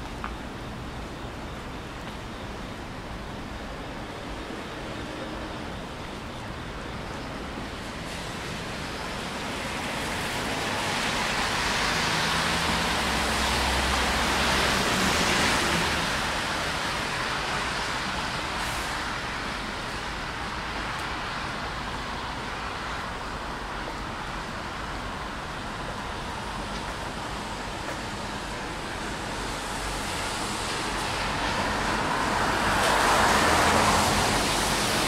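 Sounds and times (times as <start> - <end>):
rain hiss: 0.0 - 35.0
tyre hiss on wet road: 7.8 - 35.0.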